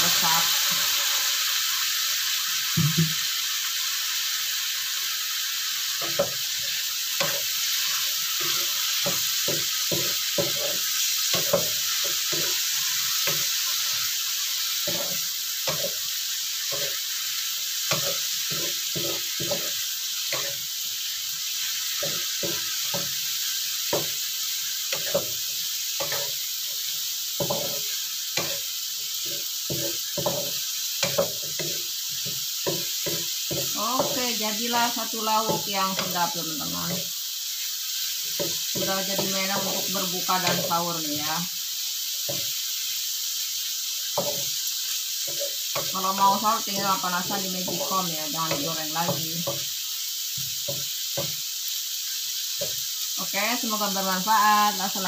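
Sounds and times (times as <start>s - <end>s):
food sizzling in a wok: 0.0s - 55.0s
wooden spatula scraping a pan: 16.7s - 17.0s, 38.3s - 40.9s.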